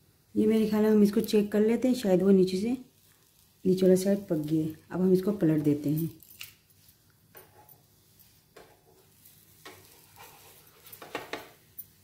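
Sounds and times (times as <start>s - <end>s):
metal turner scraping frying pan: 7.4s - 11.7s.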